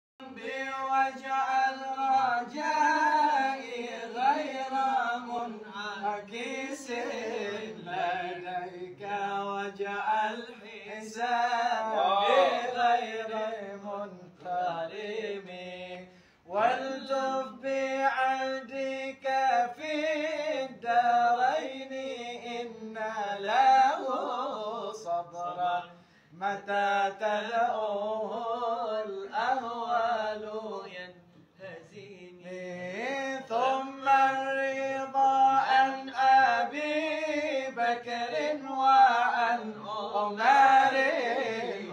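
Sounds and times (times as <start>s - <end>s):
men singing devotional chant: 0.2s - 41.9s.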